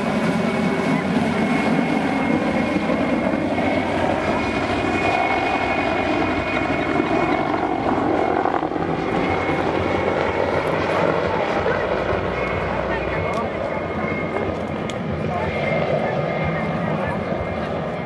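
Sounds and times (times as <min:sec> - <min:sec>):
helicopter rotor and engine noise: 0:00.0 - 0:18.0
high turbine whine: 0:00.0 - 0:18.0.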